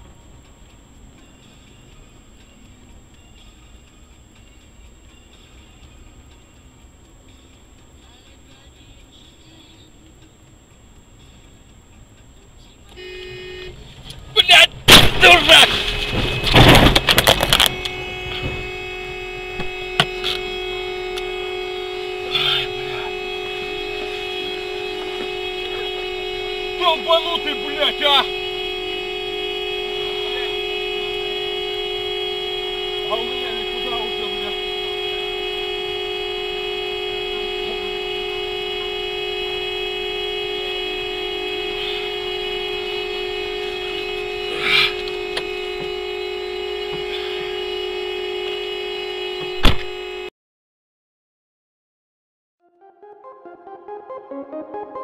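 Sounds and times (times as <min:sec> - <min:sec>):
steady hum: 0:00.0 - 0:48.6
car crash crunching and clattering: 0:14.8 - 0:17.8.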